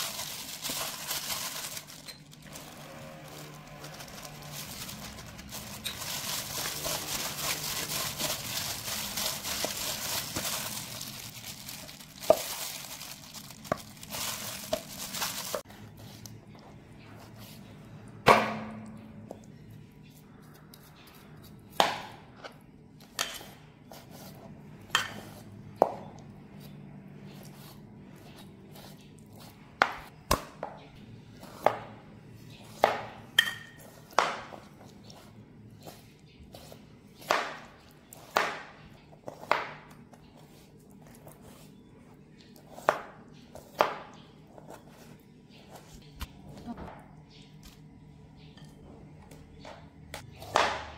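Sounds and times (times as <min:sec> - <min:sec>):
gloved hand mixing chicken in bowl: 0:02.9 - 0:15.7.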